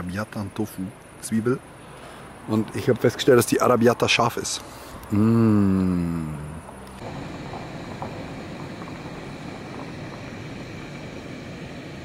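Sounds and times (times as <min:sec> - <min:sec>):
gas stove burner hissing: 0:06.8 - 0:12.0.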